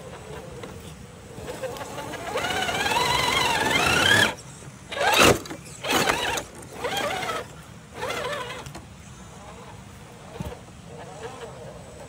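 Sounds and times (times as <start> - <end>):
electric motor and gearbox whining: 1.4 - 8.8.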